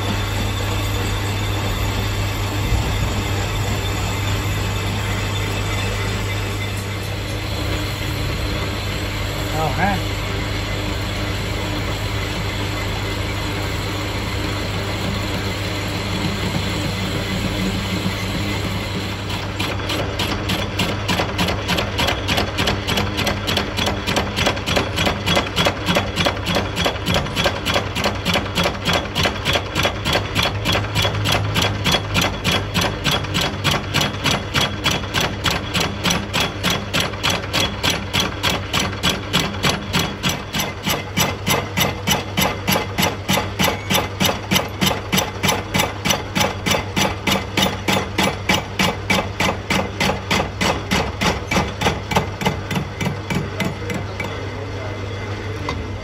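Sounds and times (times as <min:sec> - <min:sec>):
metal lathe humming: 0:00.0 - 0:23.8
regular knocking of cutting tool: 0:16.0 - 0:54.4.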